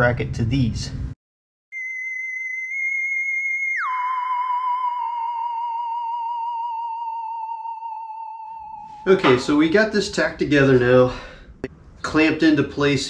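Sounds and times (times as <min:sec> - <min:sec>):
gliding electronic tone: 0:01.8 - 0:09.5.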